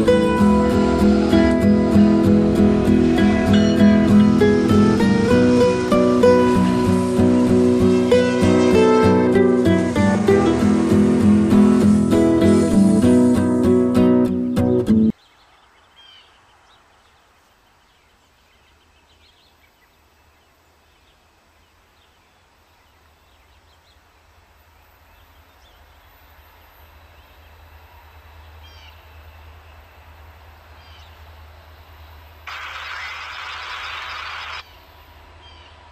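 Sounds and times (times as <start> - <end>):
acoustic guitar music: 0.0 - 15.1
freight train rumble: 0.0 - 15.1, 23.6 - 32.5, 34.6 - 35.9
bird chirps: 32.5 - 35.8.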